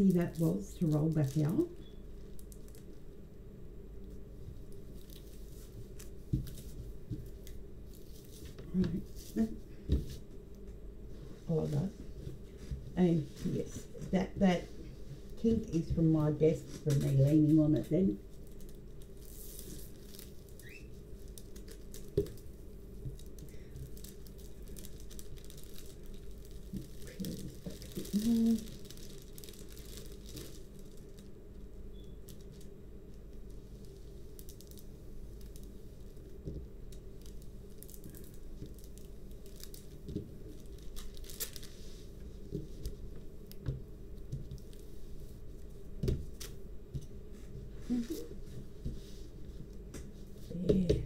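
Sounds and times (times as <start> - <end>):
plastic film rustling: 0.0 - 3.2, 4.0 - 10.3, 11.4 - 50.6
steady low hum: 0.0 - 51.0.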